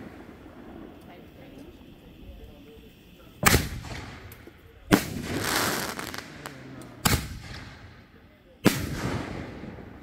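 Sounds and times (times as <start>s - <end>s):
firework shell booms: 3.4s - 10.0s.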